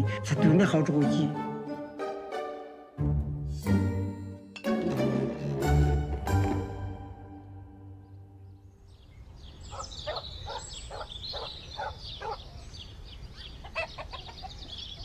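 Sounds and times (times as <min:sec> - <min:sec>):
small birds chirping: 0:07.8 - 0:15.0
chickens clucking: 0:13.4 - 0:15.0.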